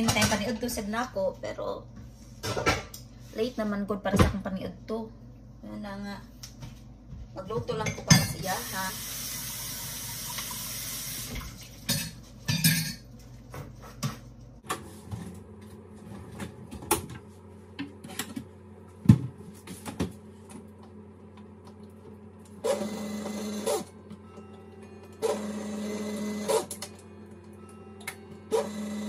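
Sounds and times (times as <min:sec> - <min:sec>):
dishes and pots clinking: 0:07.5 - 0:08.5, 0:11.8 - 0:14.3
water running from a tap: 0:08.6 - 0:11.9.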